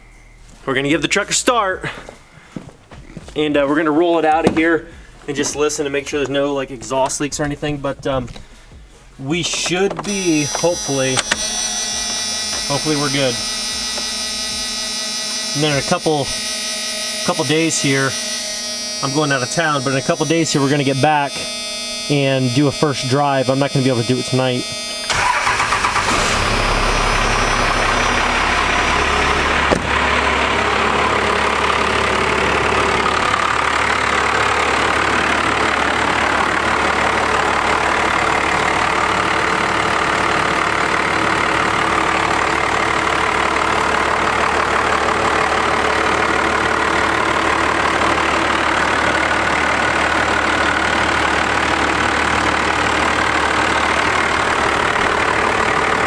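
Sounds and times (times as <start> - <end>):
diesel engine idling: 0.0 - 56.0
sharp click: 11.2 - 11.5.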